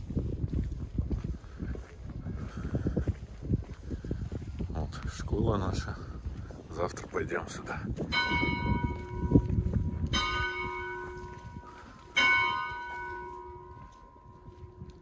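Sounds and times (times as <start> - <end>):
church bell ringing: 8.1 - 15.0.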